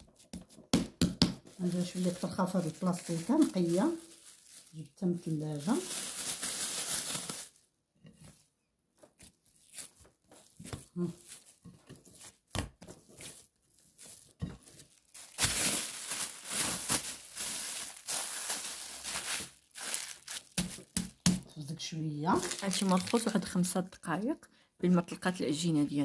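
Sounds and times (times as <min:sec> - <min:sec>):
plastic bag crinkling: 0:01.5 - 0:07.6, 0:09.4 - 0:12.4, 0:13.0 - 0:21.2, 0:22.3 - 0:23.8.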